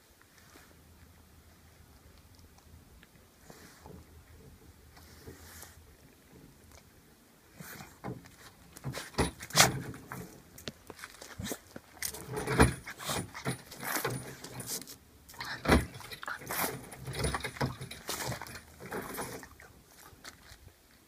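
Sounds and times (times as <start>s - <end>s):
dog chain clinking: 12.0s - 19.5s.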